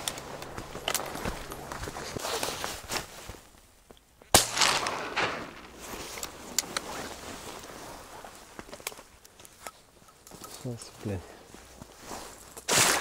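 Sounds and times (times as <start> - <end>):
rustling: 0.0 - 3.7, 4.6 - 13.0
shotgun shot: 4.3 - 5.7.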